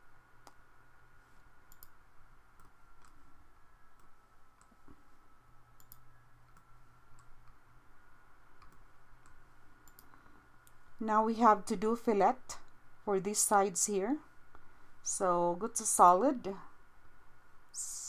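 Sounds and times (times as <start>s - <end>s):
faint steady hum: 0.0s - 18.0s
computer mouse clicks: 0.4s - 0.6s, 1.7s - 3.2s, 4.0s - 5.0s, 5.8s - 7.6s, 8.6s - 10.8s.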